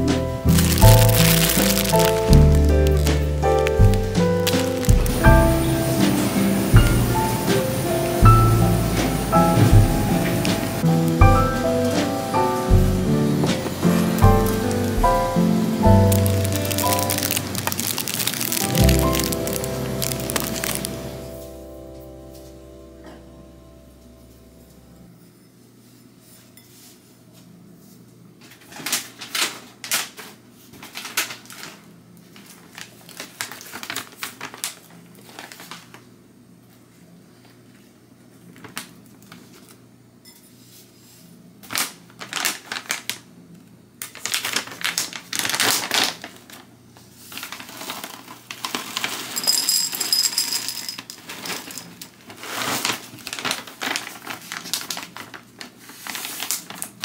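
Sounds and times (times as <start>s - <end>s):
plastic bag crinkling: 0.4s - 5.7s, 13.9s - 21.2s, 30.8s - 36.0s, 41.7s - 43.2s, 44.1s - 50.0s, 51.1s - 57.0s
cereal rattling into a bowl: 0.5s - 5.2s, 16.1s - 20.9s, 47.3s - 57.0s.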